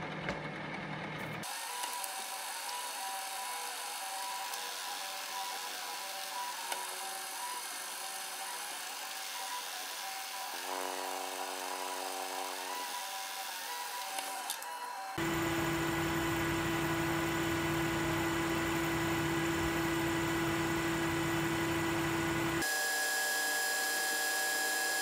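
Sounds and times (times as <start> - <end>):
milling machine whine: 1.4 - 25.0
deep machine hum: 15.2 - 22.6.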